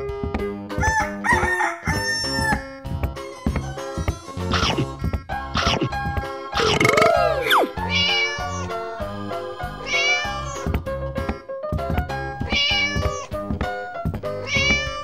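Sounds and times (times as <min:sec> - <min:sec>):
background music with steady beat: 0:00.0 - 0:15.0
cat meowing: 0:06.6 - 0:08.8, 0:09.8 - 0:10.7, 0:12.4 - 0:13.3, 0:14.4 - 0:15.0.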